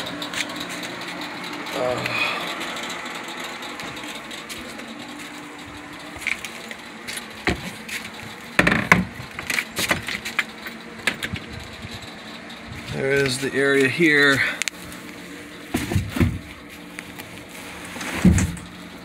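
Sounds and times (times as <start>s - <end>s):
footsteps on boat deck: 3.8s - 10.5s
sharp clunks and clicks: 7.1s - 12.1s.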